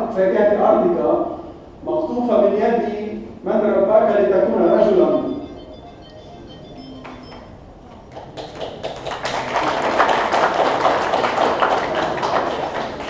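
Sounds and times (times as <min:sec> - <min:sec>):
people clapping: 0:07.0 - 0:13.0.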